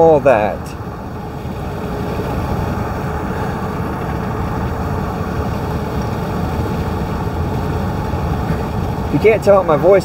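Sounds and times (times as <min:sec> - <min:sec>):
car road and engine rumble: 0:00.0 - 0:10.0.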